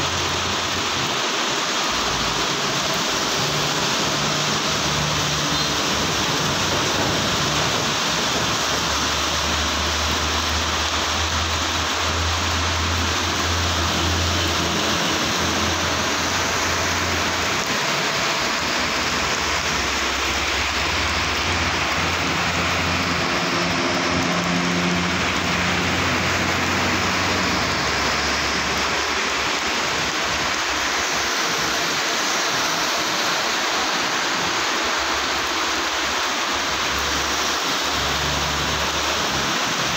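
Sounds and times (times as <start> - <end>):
heavy rain on road: 0.0 - 39.9
passing truck engines hum: 0.0 - 39.9
tyres on flooded road: 0.0 - 39.9.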